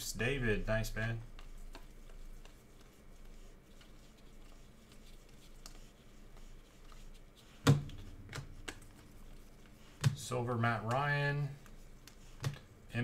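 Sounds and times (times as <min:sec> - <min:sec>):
trading cards clicking and rustling: 0:06.8 - 0:11.1.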